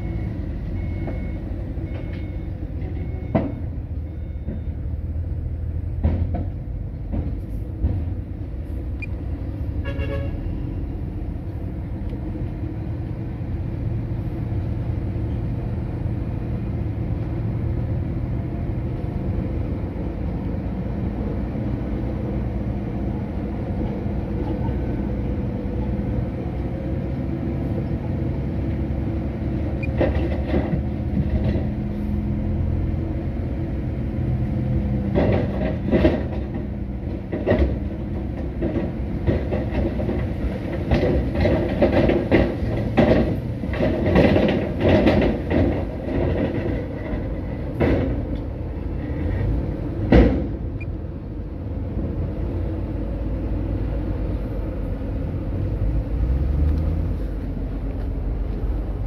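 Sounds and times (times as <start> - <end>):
brief tone: 0.0 - 4.9
heavy diesel machinery running: 0.0 - 59.0.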